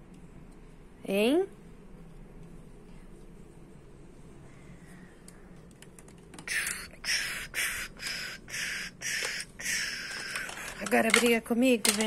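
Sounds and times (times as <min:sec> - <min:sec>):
child making hissing fight noises: 0:06.5 - 0:10.5.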